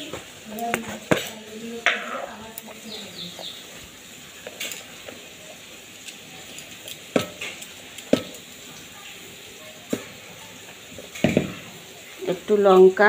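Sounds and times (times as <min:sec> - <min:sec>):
knocks on steel mixing bowl: 0:11.2 - 0:11.6.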